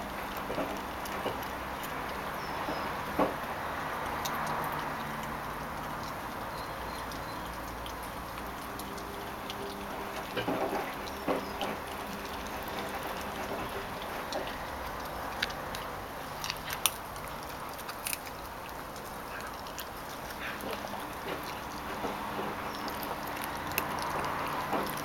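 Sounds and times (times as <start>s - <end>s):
puppy chewing bone: 0.0s - 25.0s
bone crunching: 7.5s - 25.0s.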